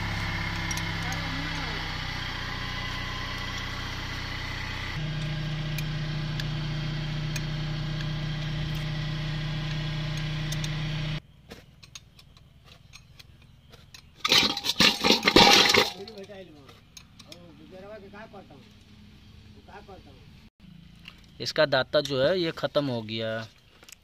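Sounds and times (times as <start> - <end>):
engine running: 0.0 - 21.4
metal gearbox parts clinking: 11.7 - 17.5.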